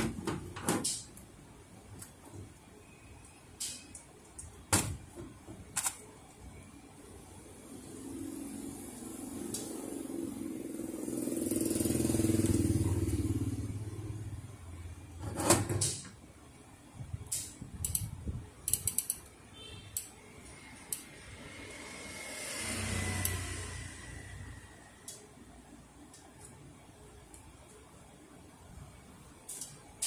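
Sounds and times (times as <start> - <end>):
metal parts clicking and knocking: 17.2 - 19.3
vehicle passing with low rumble: 21.2 - 25.0.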